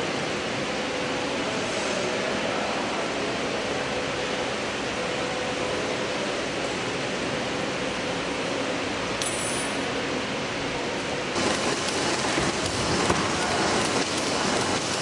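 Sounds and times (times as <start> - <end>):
laminating machine running: 11.0 - 15.0.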